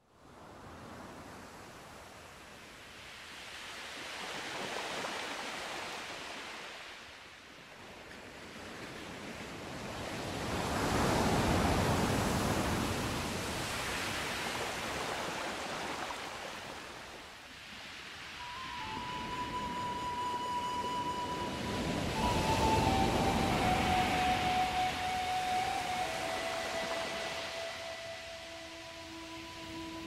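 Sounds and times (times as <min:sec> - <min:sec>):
ocean waves washing in: 0:08.4 - 0:30.0.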